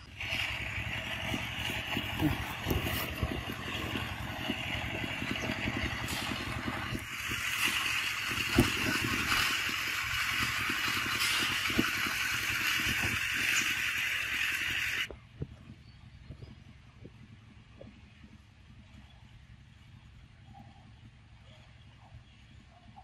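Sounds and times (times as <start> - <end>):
low rumble: 0.0 - 13.4.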